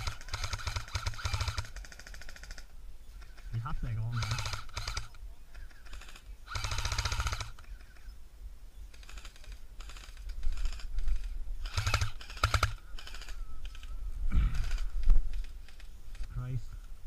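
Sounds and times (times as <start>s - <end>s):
airsoft rifle bursts: 0.0s - 2.6s, 4.1s - 8.1s, 8.9s - 13.9s.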